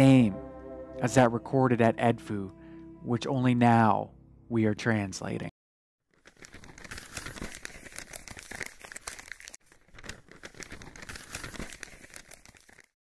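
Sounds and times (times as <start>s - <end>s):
paper crinkling and rustling: 6.1s - 13.0s.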